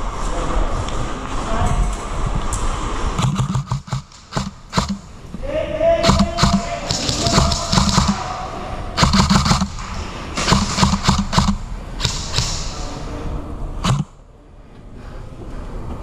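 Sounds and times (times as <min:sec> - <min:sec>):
airsoft guns firing bursts: 0:03.2 - 0:05.2, 0:06.0 - 0:08.4, 0:09.0 - 0:12.8, 0:13.8 - 0:14.1.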